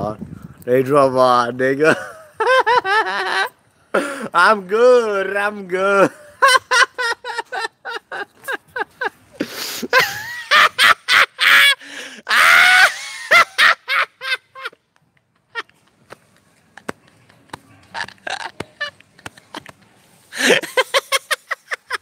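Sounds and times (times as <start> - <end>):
man laughing hard: 1.9 - 4.2, 6.0 - 14.8, 17.3 - 22.0.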